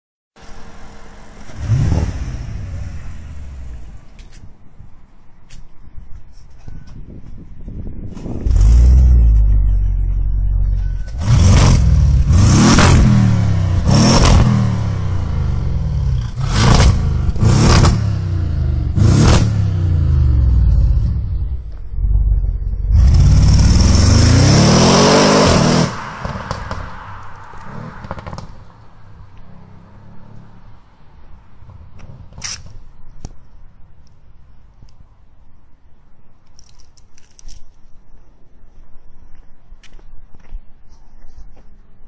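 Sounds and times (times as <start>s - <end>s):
car engine idling and revving: 0.4s - 4.5s, 8.2s - 32.4s.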